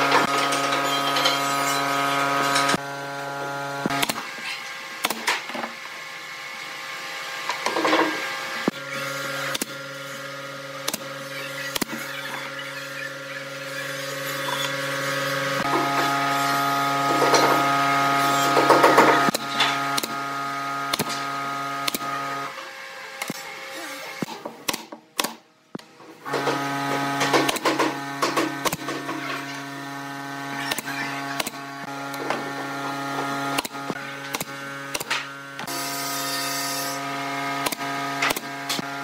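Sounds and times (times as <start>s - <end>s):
air compressor humming: 0.0s - 39.0s
nail gun firing: 24.2s - 25.4s.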